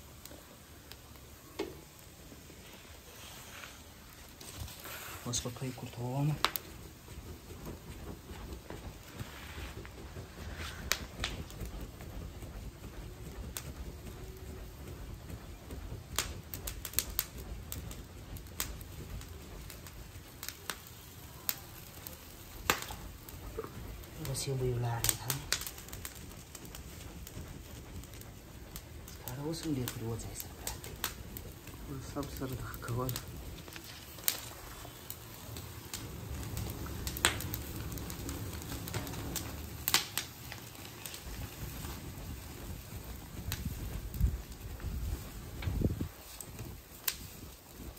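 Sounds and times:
coals popping and crackling: 0.0s - 47.9s
low rumble of air: 1.9s - 47.9s.

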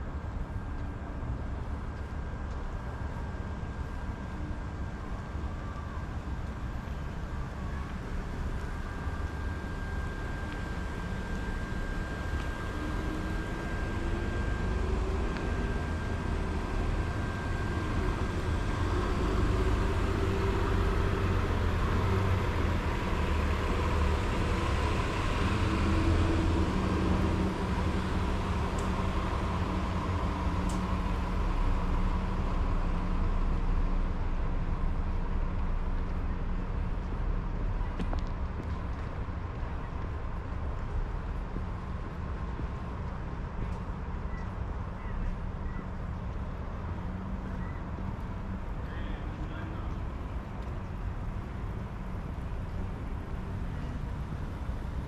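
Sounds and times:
faint thin whine: 0.0s - 38.9s
car traffic rumble: 0.0s - 55.0s.

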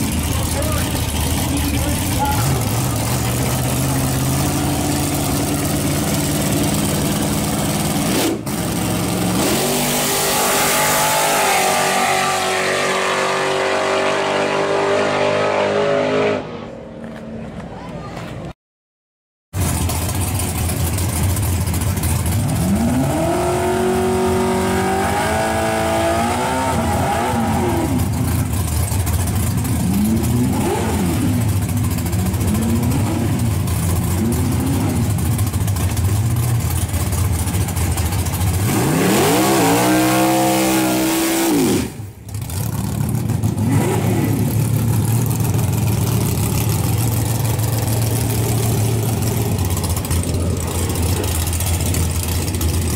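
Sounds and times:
pickup engine idling and revving: 0.0s - 18.4s, 19.6s - 52.9s.

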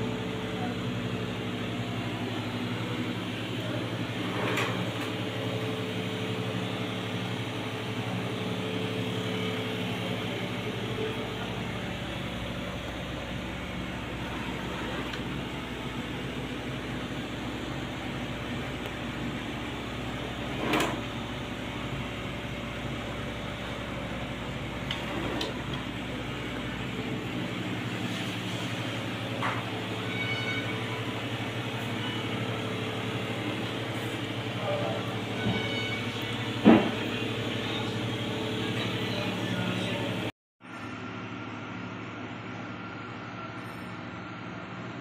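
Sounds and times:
mechanical hum and whir: 0.0s - 45.0s.

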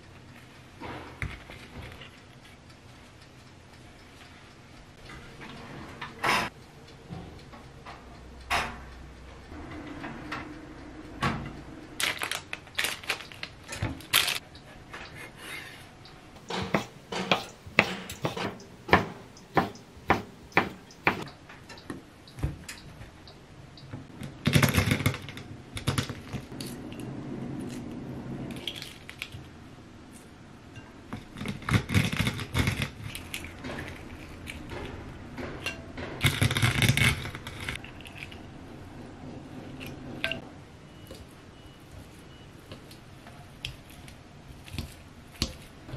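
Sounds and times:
knife chopping on wooden board: 16.5s - 21.2s
eggshells cracking and peeling: 31.2s - 35.0s.

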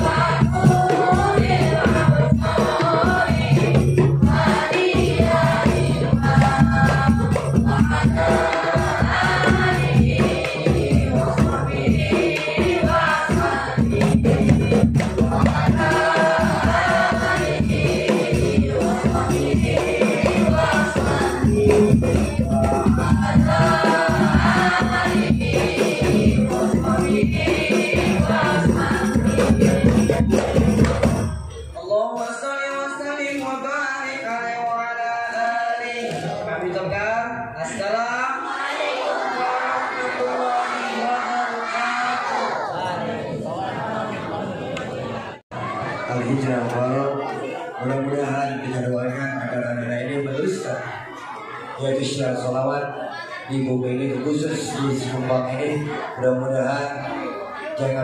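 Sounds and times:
children singing together: 0.0s - 31.6s, 38.2s - 58.0s
frame drums beating: 0.0s - 31.6s
jingling percussion: 0.0s - 34.0s.

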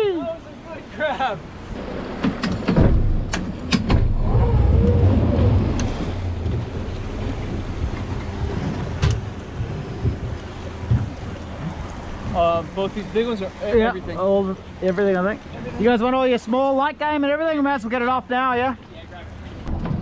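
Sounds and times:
boat motor rumbling: 0.0s - 20.0s
sharp knocks: 2.2s - 4.2s.

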